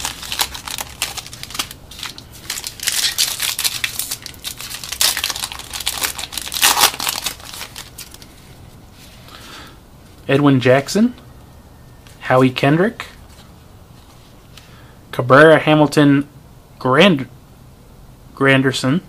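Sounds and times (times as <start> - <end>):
card pack wrapper crinkling and tearing: 0.0 - 8.4.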